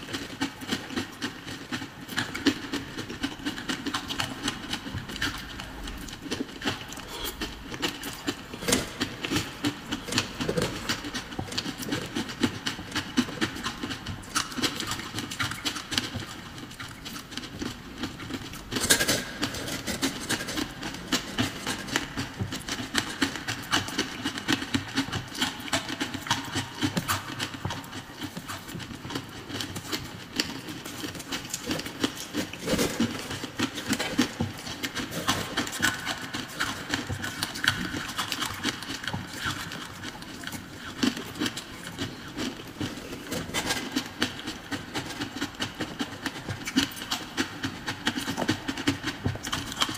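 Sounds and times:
crunching ice while chewing: 0.0s - 49.9s.

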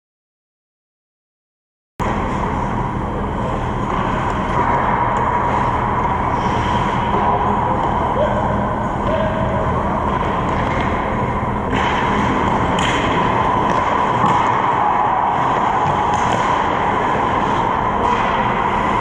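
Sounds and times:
skate blades on ice: 10.0s - 19.0s.

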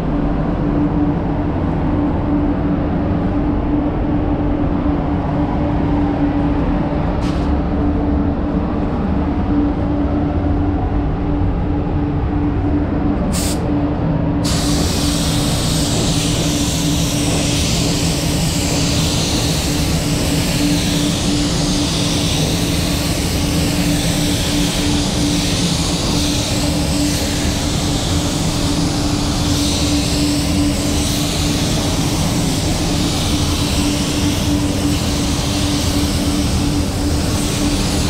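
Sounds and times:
ventilation rumble and hum: 0.0s - 38.0s
spray gun air hiss: 13.3s - 13.7s, 14.4s - 38.0s.

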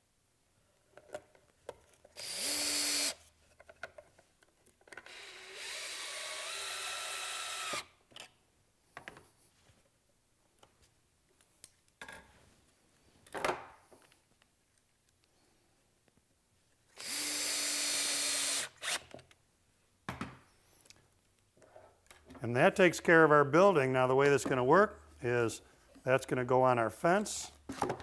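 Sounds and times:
power drill driving screws: 2.2s - 3.2s, 5.0s - 7.9s, 16.9s - 19.1s.

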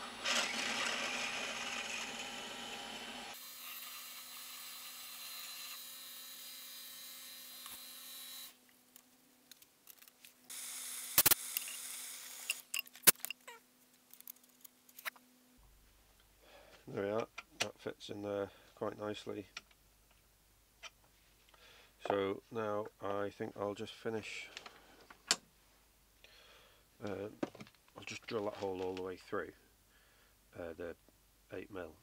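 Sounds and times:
metal lathe drilling: 0.0s - 6.6s.

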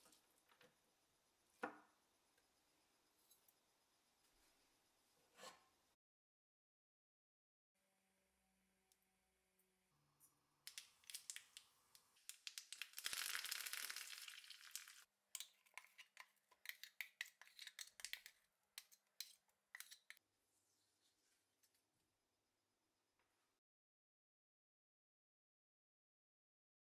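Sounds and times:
oil crackling and popping: 10.7s - 20.2s
leaves sizzling in hot oil: 12.4s - 15.1s.

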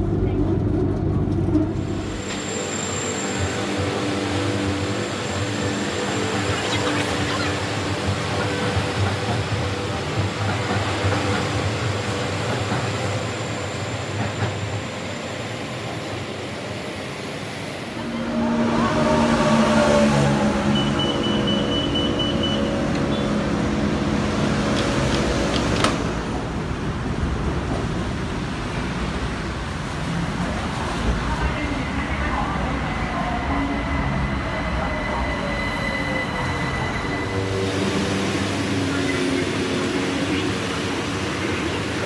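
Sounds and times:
electric train running hum: 0.0s - 42.0s
road traffic noise: 0.0s - 42.0s.

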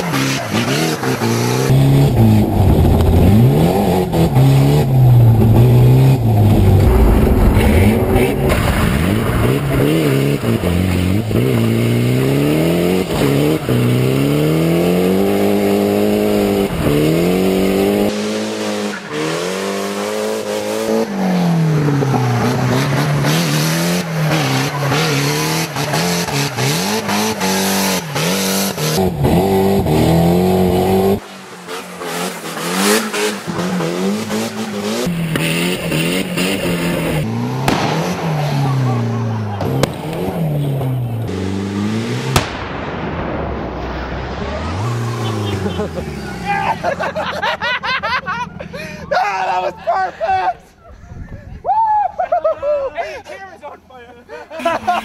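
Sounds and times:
car engine revving hard: 0.0s - 42.7s.

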